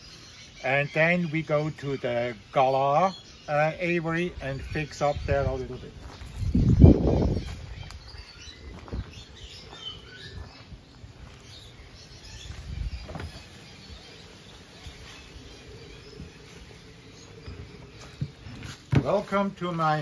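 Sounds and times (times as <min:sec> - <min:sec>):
faint bird chirps: 0:00.0 - 0:18.8
footsteps on soil and leaves: 0:05.7 - 0:20.0.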